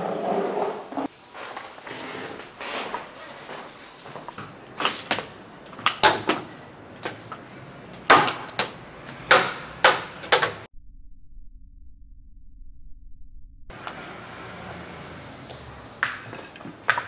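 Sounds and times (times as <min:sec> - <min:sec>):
faint low rumble: 0:10.7 - 0:14.5.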